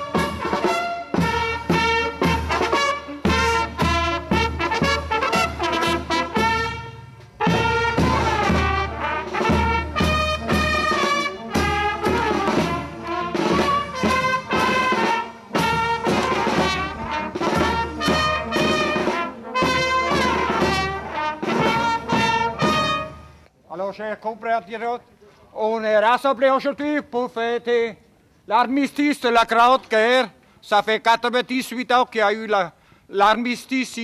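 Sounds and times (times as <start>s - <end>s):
brass band playing: 0.0s - 23.4s.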